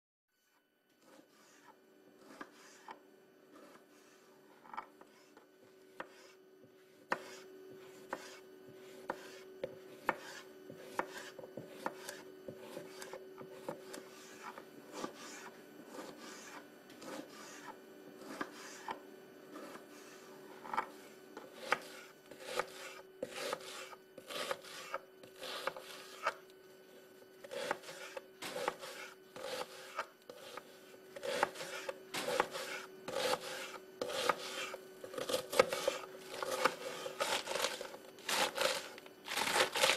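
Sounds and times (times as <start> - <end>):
faint steady hum: 0.4 - 39.9
knife chopping on cutting board: 5.9 - 19.0, 20.7 - 26.4, 27.4 - 39.9.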